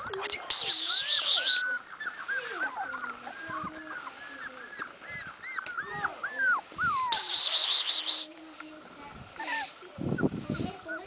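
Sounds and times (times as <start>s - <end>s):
puppy whimpering: 0.0s - 8.3s, 9.4s - 11.0s.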